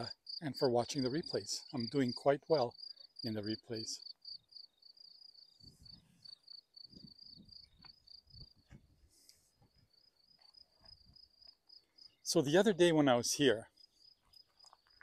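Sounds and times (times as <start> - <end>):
cricket chirping: 0.0 - 15.0
faint low thumps and rustles: 5.6 - 11.5.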